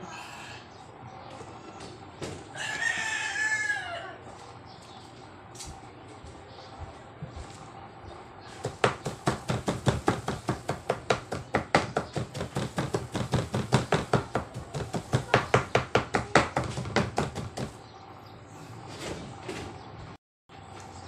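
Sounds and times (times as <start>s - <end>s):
knife chopping on plastic board: 8.6s - 17.8s.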